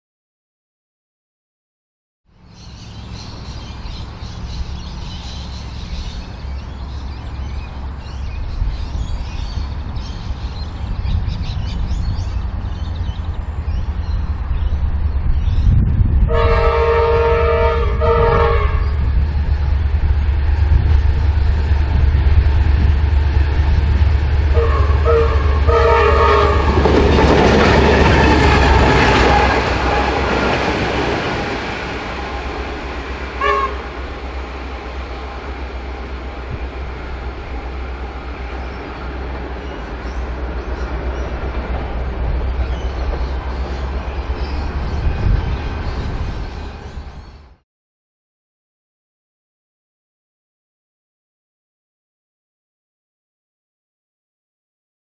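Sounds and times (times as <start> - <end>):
diesel locomotive engine drone: 2.3 - 47.6
multi-note train horn: 16.2 - 19.1, 24.5 - 27.0, 27.8 - 30.7, 33.4 - 34.2
train wheel noise: 18.1 - 47.3.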